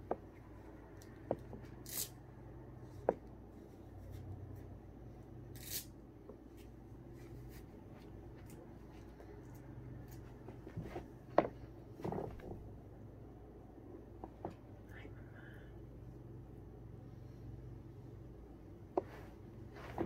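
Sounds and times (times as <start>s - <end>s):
low steady hum: 0.0s - 20.0s
soft rustles: 6.5s - 12.7s, 19.0s - 20.0s.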